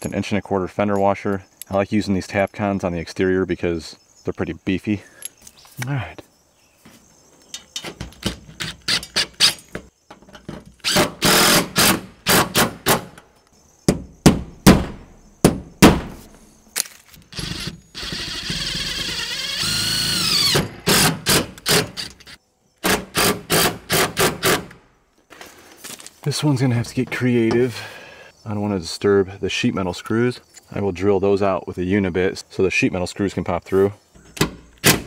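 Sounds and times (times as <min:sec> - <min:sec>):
cordless drill driving screws: 0:10.8 - 0:13.0, 0:17.3 - 0:24.8.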